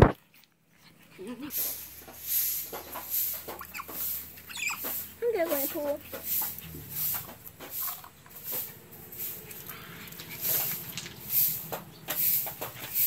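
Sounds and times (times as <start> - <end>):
high-pitched animal squeaks: 3.5 - 5.7.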